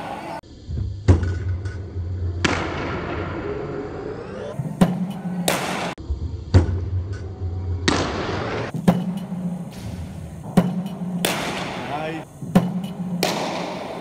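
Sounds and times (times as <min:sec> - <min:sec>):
cricket ball cracking off bat: 0:12.6 - 0:14.0.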